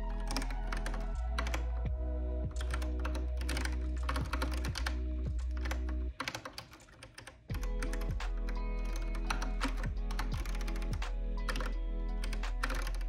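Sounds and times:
background music with bass: 0.0 - 6.2, 7.5 - 13.0
keyboard key clicks: 2.6 - 13.0.

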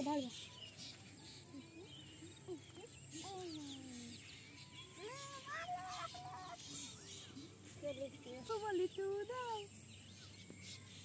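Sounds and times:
small bird chirps: 0.0 - 11.0
distant long calls: 4.8 - 7.5.

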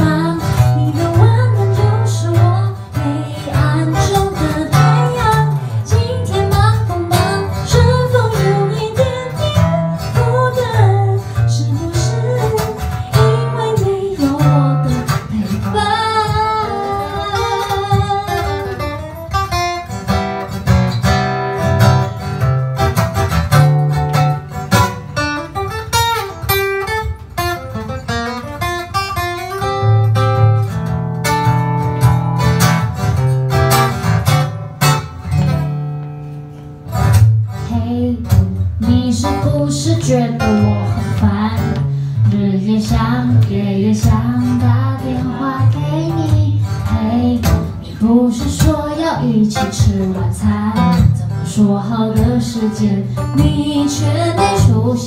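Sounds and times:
woman singing into a microphone: 0.0 - 19.0, 37.5 - 55.0
acoustic guitar: 0.0 - 55.0.

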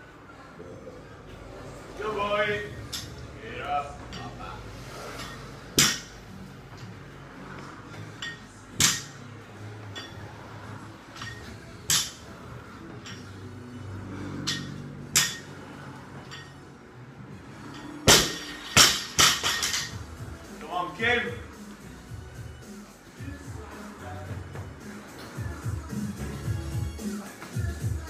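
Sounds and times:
barbell crashing onto floor: 18.1 - 19.8.

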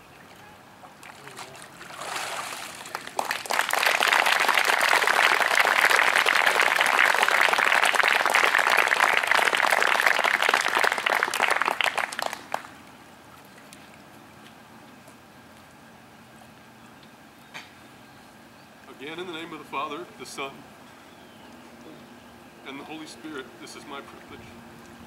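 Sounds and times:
people applauding: 2.4 - 12.8.

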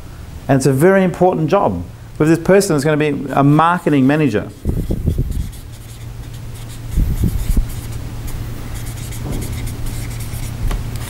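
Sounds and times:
steady low hum: 0.0 - 11.0
marker scratching on paper: 3.9 - 10.6.

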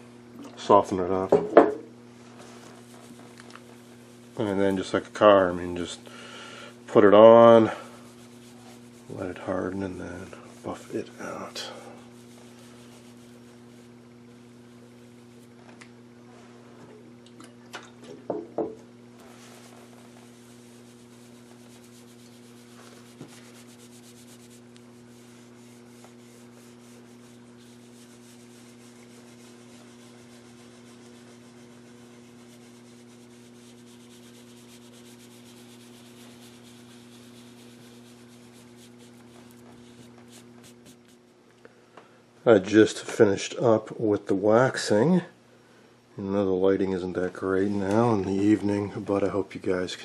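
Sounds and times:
steady low hum: 0.0 - 50.0
pad scrubbing wax on wood: 2.3 - 6.0, 6.9 - 15.6, 19.2 - 41.3.

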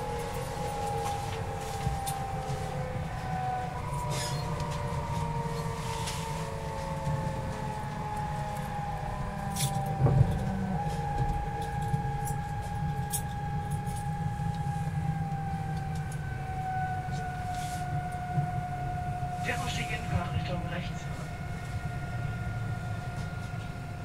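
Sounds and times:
low train rumble: 0.0 - 24.0.

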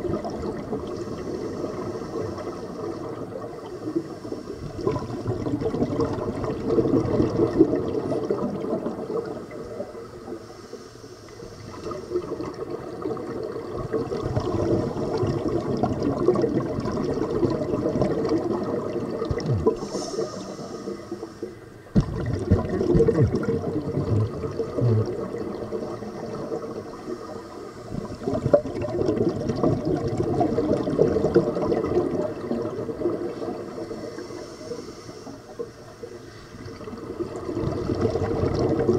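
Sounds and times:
gurgling exhaled bubbles: 0.0 - 10.4, 11.6 - 21.2, 21.9 - 34.4, 35.6 - 38.9
scuba regulator breathing underwater: 0.9 - 4.9, 19.3 - 21.8, 23.9 - 28.3, 33.7 - 36.7.

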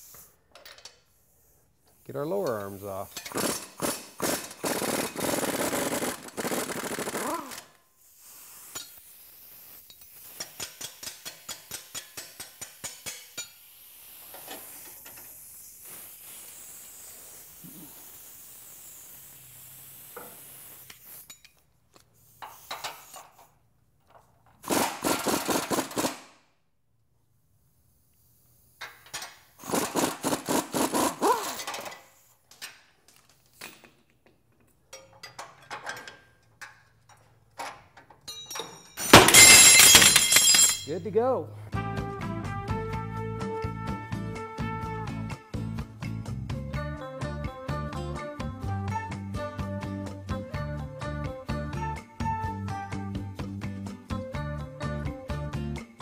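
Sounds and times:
pneumatic impact wrench hammering: 3.1 - 21.6, 22.2 - 23.5, 24.6 - 26.4, 28.7 - 32.8, 34.9 - 40.7.

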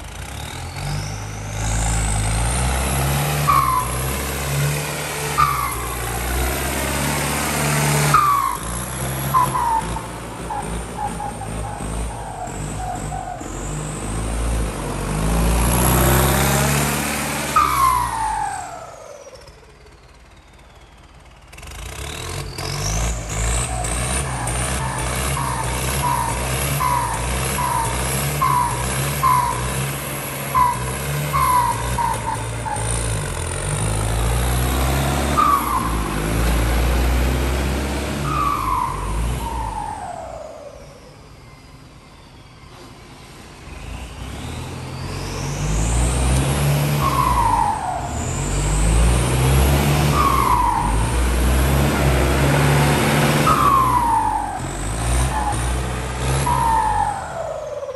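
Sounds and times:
tractor diesel engine revving: 0.0 - 42.1, 42.7 - 57.9
high turbo whistle: 35.0 - 37.1, 38.0 - 42.7, 46.8 - 52.5.

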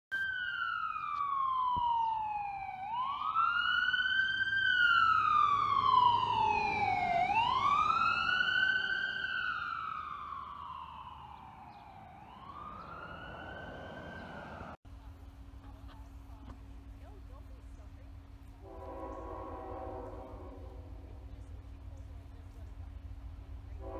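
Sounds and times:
ambulance siren wailing: 0.1 - 14.8.

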